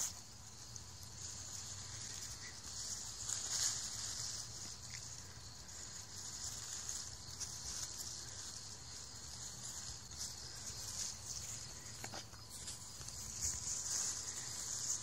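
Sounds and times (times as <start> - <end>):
night insects chorus: 0.0 - 15.0
rustling of leafy ground cover: 0.0 - 15.0.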